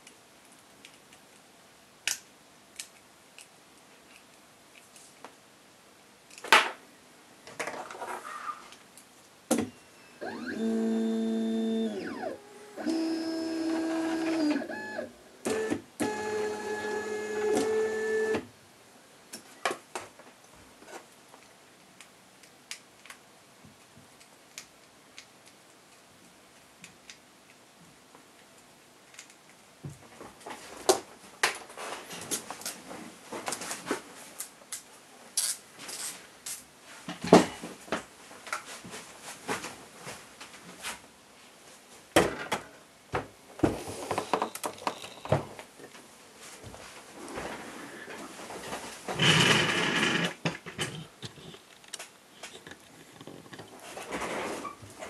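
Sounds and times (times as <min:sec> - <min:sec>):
stepper motor whining: 0:10.2 - 0:14.9.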